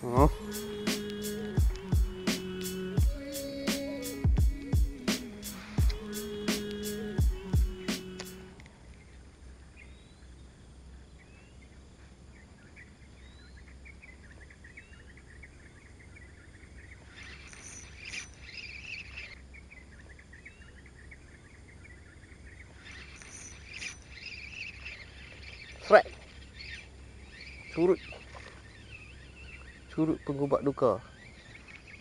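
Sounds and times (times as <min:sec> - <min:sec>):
insect trill: 0:00.0 - 0:32.0
low steady hum: 0:04.4 - 0:32.0
faint bird chirps: 0:05.9 - 0:32.0
rapid chirping or clicking: 0:17.2 - 0:19.4, 0:22.8 - 0:25.9.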